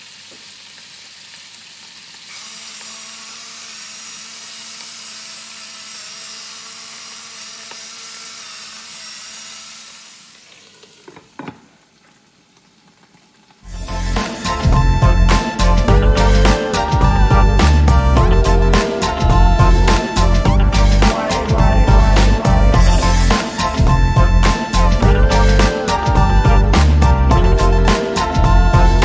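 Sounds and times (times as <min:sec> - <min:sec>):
vegetables sizzling in a frying pan: 0:00.0 - 0:03.0.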